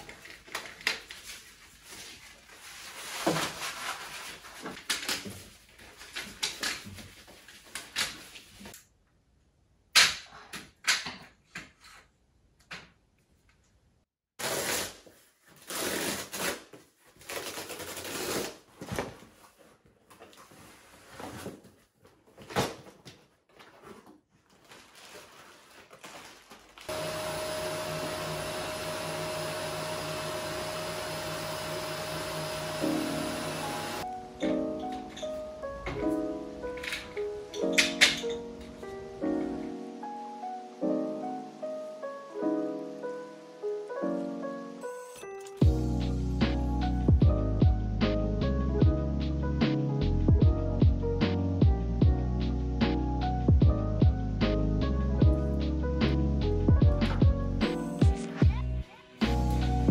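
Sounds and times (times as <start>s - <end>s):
vacuum cleaner running: 26.9s - 34.1s.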